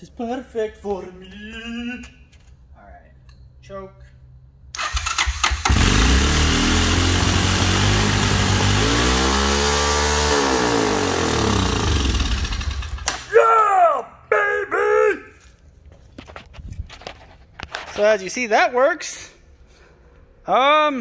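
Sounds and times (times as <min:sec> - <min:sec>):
engine cranking and running fast: 0:04.8 - 0:13.1.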